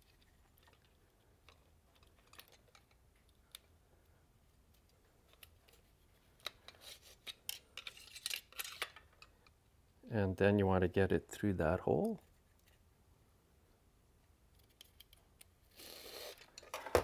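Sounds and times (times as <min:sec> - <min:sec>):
plastic parts clicking: 0:00.1 - 0:03.7, 0:04.7 - 0:09.5.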